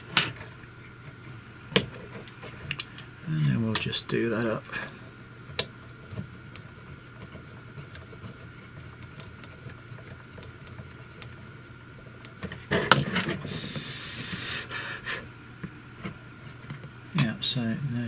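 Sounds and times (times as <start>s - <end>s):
short hiss: 13.5s - 15.2s.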